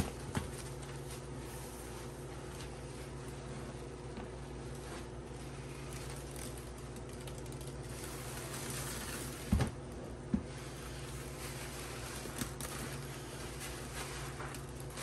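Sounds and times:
low steady hum: 0.0s - 15.0s
wet sponge squelching: 10.6s - 15.0s.

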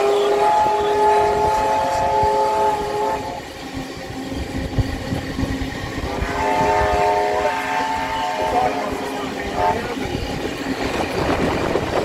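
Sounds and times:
steam locomotive chime whistle: 0.0s - 3.6s, 6.0s - 10.2s
rumble and knocking of moving train: 0.0s - 12.0s.

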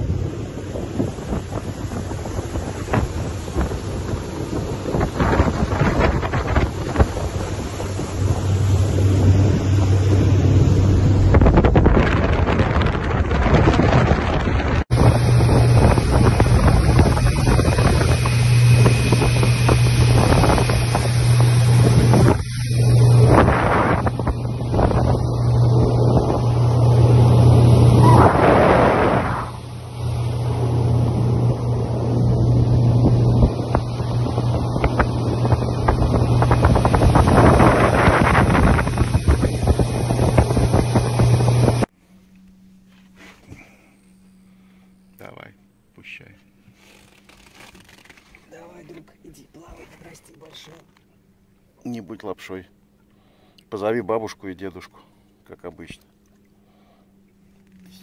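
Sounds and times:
wind rushing over microphone: 0.0s - 41.9s
motorboat engine droning: 0.0s - 58.0s.

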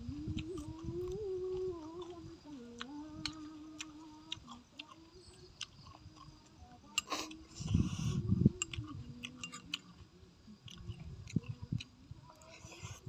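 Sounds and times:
man humming: 0.0s - 5.2s
man chewing: 0.2s - 6.4s, 7.0s - 10.0s, 10.6s - 13.0s.

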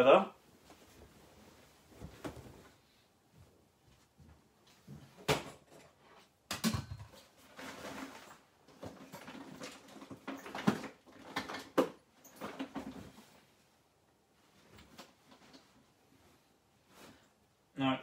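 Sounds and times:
rustling: 0.4s - 5.2s.

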